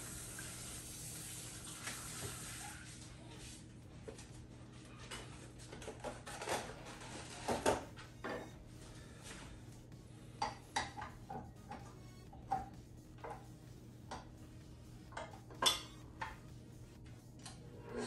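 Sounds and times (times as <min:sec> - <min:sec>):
kitchenware clinking on metal bowl: 0:15.2 - 0:16.4.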